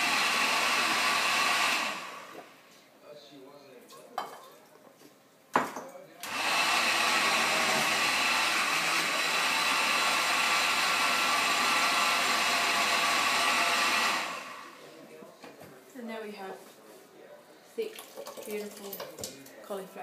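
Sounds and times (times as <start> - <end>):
blender running: 0.0 - 2.6, 6.2 - 14.8.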